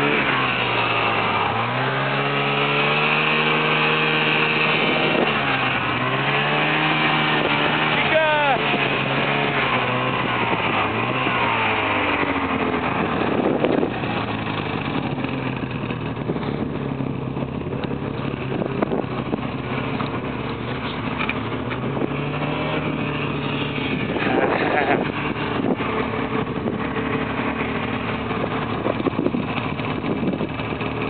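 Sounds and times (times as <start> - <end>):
snowmobile engine running: 0.0 - 31.0
rattle of the ride: 7.4 - 31.0.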